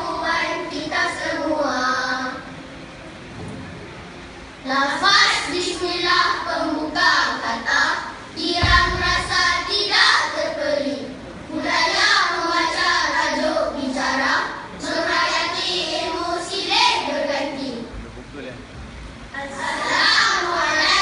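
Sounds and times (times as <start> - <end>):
children reciting in unison: 0.0 - 2.5, 4.6 - 17.9, 19.3 - 21.0
dull thud: 8.6 - 9.3.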